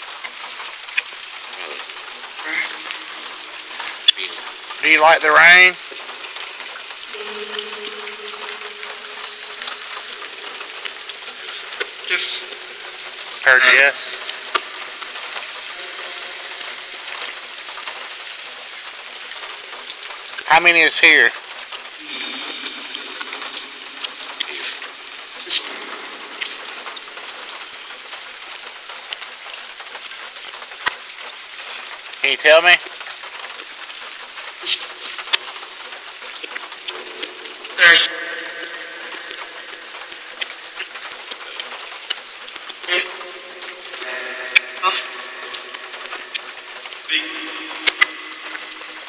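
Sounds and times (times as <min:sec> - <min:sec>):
rain falling: 0:00.0 - 0:49.0
sharp drips: 0:00.0 - 0:49.0
steady low tone: 0:01.6 - 0:04.9, 0:05.8 - 0:18.5, 0:22.0 - 0:28.5, 0:42.6 - 0:49.0.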